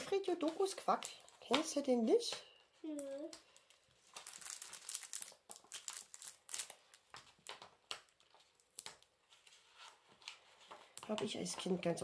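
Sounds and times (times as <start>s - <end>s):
paper crinkling and rustling: 3.5s - 12.0s.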